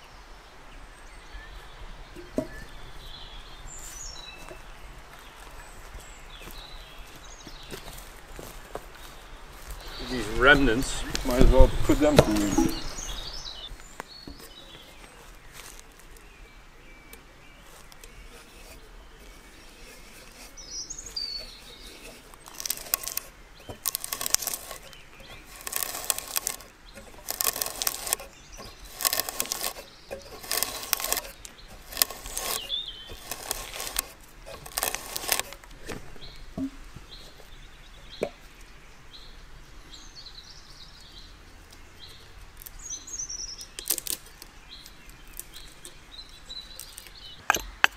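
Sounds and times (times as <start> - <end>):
birds chirping faintly: 0.0 - 47.9
hand auger boring into log: 10.0 - 16.0, 17.6 - 36.7, 43.7 - 47.9.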